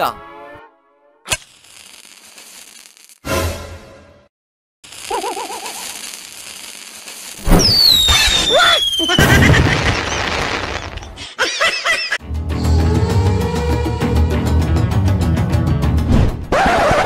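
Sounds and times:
firework rocket launch whistling: 0:01.3 - 0:03.2, 0:04.9 - 0:11.1
firework bursts and crackling: 0:01.3 - 0:03.3, 0:04.8 - 0:11.2
music: 0:12.2 - 0:16.5.

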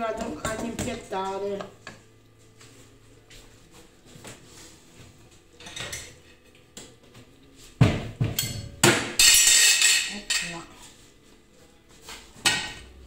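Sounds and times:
ceramic plates clattering: 0:08.5 - 0:10.6.

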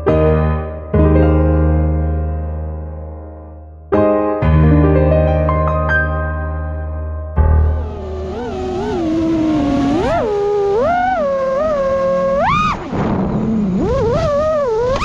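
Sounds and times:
drone motors whining: 0:07.4 - 0:15.0.

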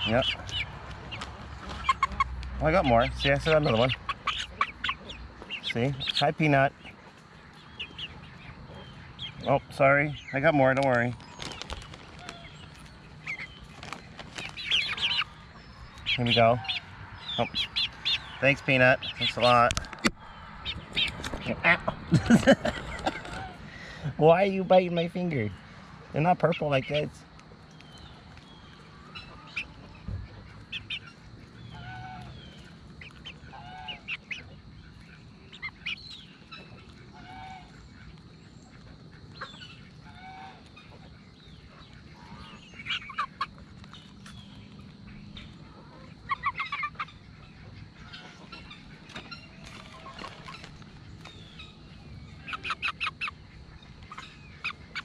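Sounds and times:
geese honking: 0:00.0 - 0:10.7, 0:28.9 - 0:43.7, 0:45.0 - 0:50.9, 0:51.5 - 0:55.0
chickens clucking: 0:00.0 - 0:55.0.

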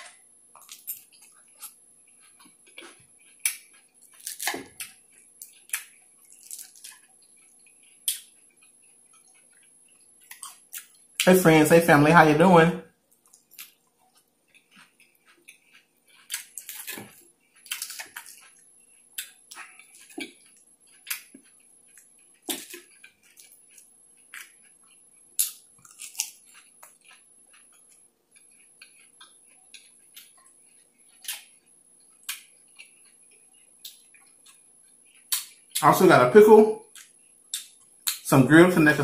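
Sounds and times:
chewing salad crunches: 0:00.0 - 0:11.4, 0:13.1 - 0:36.0, 0:36.8 - 0:38.8.

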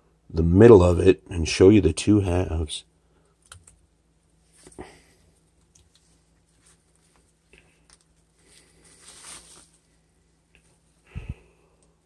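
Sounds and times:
soft plastic wrap rustle: 0:03.4 - 0:11.2.

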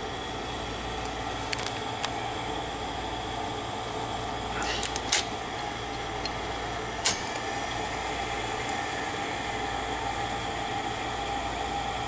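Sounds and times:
tape recorder whirring hum: 0:00.0 - 0:12.0
sharp click: 0:07.0 - 0:07.5.

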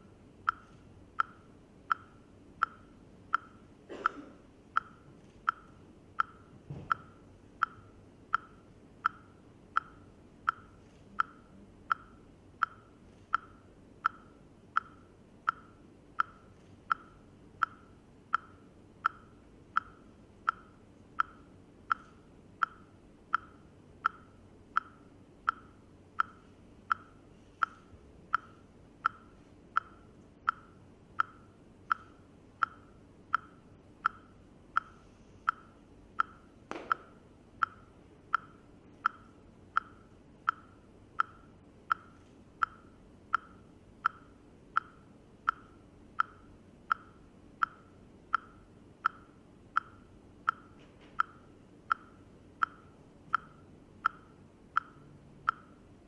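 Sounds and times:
ticking clicks: 0:00.4 - 0:55.8.

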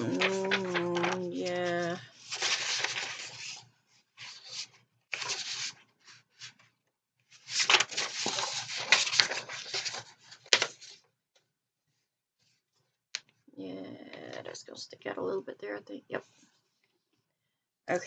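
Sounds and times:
book pages rustling: 0:00.0 - 0:06.7, 0:07.3 - 0:11.1
paper crinkles: 0:00.0 - 0:06.7, 0:07.3 - 0:11.1.

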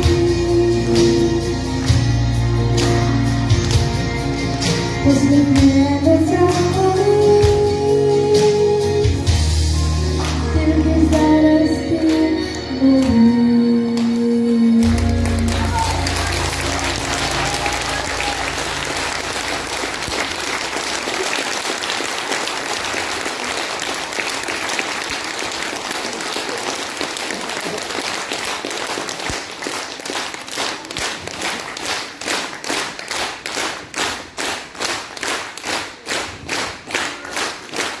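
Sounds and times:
low music notes: 0:00.0 - 0:21.0
rhythmic clapping in unison: 0:00.0 - 0:38.0
audience applauding: 0:14.8 - 0:38.0.

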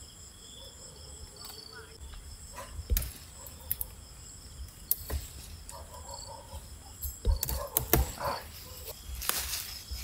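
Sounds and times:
night insects chirring: 0:00.0 - 0:10.0
rustling plant: 0:08.0 - 0:10.0
flower stalks snapping: 0:09.2 - 0:09.7.

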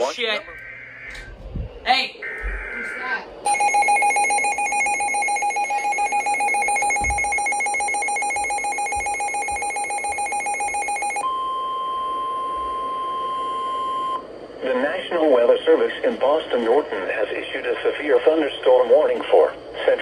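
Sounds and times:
rapidly pulsing alarm: 0:02.1 - 0:11.3
steady warning alarm tone: 0:02.2 - 0:14.2.

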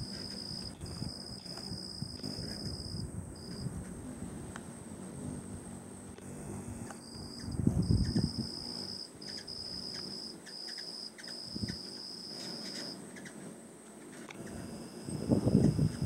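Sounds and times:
faint high whine: 0:00.0 - 0:16.0
hummingbird wings humming: 0:00.0 - 0:16.0
insects trilling: 0:00.0 - 0:16.0.

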